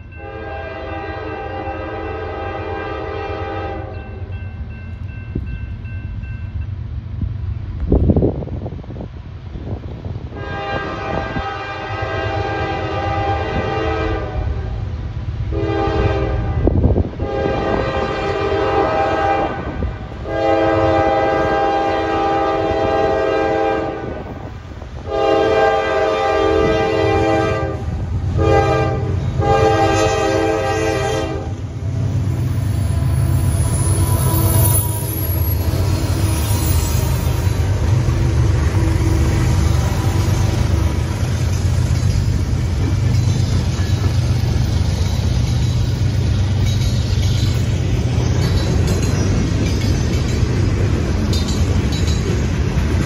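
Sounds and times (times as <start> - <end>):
diesel locomotive rumble: 0.0 - 53.0
train air horn blasts: 0.1 - 4.0, 10.3 - 14.9, 15.5 - 31.8, 32.6 - 38.0, 38.6 - 41.2.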